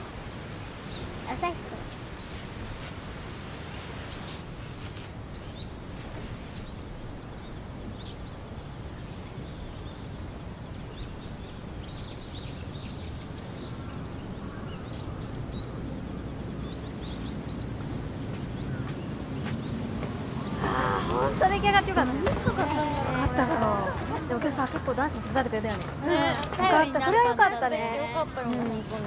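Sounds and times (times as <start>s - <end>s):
small birds chirping: 0.8s - 29.0s
faint crackles: 1.4s - 6.7s.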